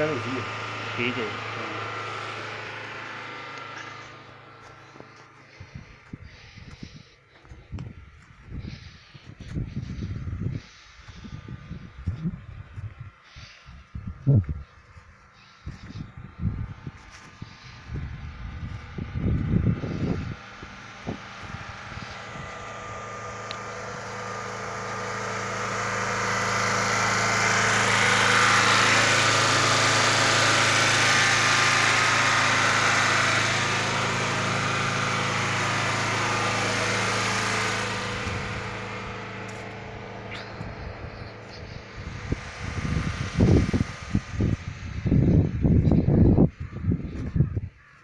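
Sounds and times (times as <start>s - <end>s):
steady engine hum: 0.0s - 48.0s.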